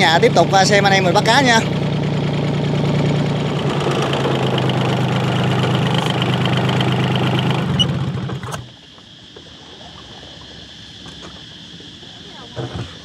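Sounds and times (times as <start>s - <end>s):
boat engine running: 0.0s - 13.0s.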